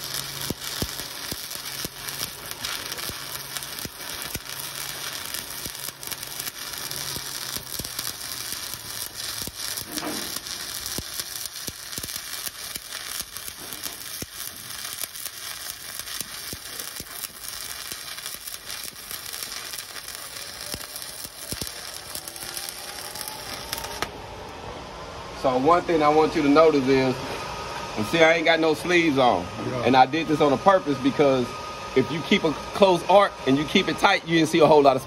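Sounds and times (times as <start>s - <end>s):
welding arc crackling: 0.0s - 24.2s, 32.0s - 35.0s
welding arc pops: 0.0s - 24.2s.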